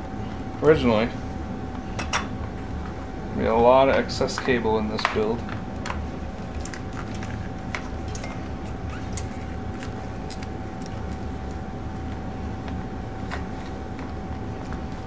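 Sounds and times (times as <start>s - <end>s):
steady background hum: 0.0s - 15.0s.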